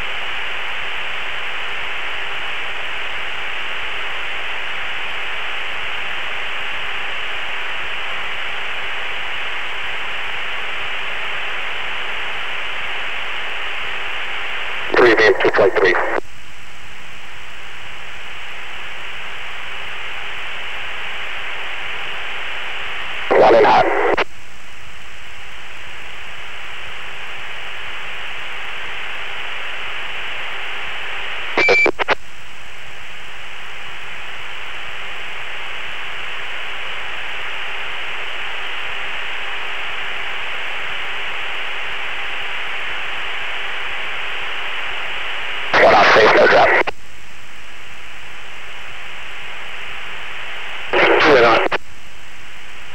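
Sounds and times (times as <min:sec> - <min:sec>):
radio hiss: 0:00.0 - 0:52.9
radio transmission burst: 0:14.9 - 0:16.2, 0:23.2 - 0:24.3, 0:31.5 - 0:32.2, 0:45.7 - 0:47.0, 0:50.5 - 0:51.8.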